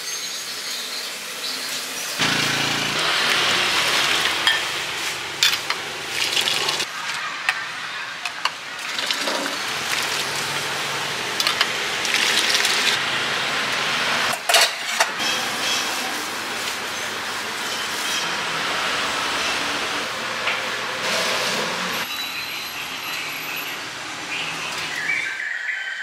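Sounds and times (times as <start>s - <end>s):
street food stall hiss: 0.0s - 25.6s
metal ladle clinking on bowls: 4.4s - 4.7s.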